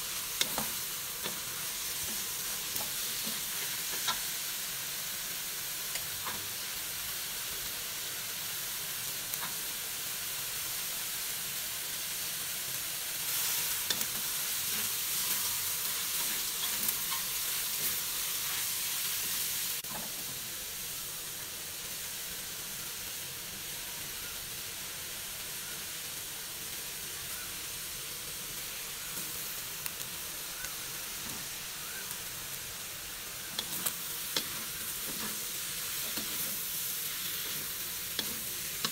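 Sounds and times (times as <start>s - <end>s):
food sizzling in a wok: 0.0s - 38.9s
spatula scraping a pan: 33.5s - 38.9s.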